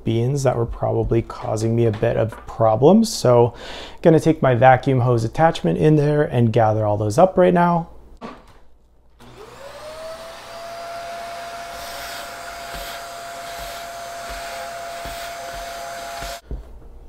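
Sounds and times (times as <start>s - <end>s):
vacuum cleaner motor whine: 9.2s - 16.4s.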